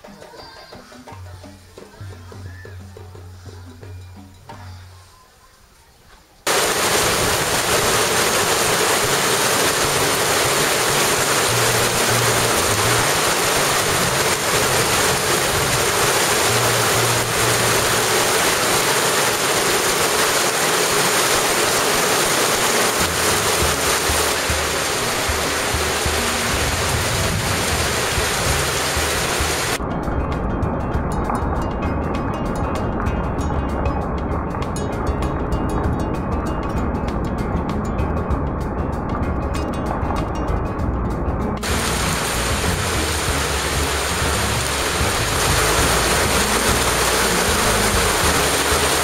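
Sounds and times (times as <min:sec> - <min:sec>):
heavy rain pouring: 0:06.5 - 0:29.8, 0:41.6 - 0:49.0.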